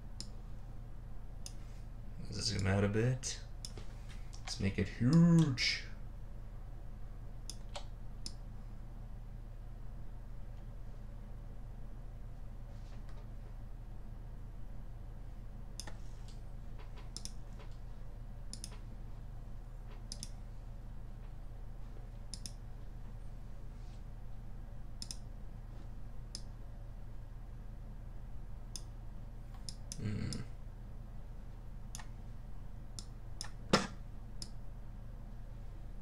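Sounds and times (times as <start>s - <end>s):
steady low hum: 0.0s - 36.0s
computer mouse clicking: 15.8s - 17.8s, 18.5s - 18.8s, 19.9s - 20.4s, 22.3s - 22.6s, 25.0s - 25.3s.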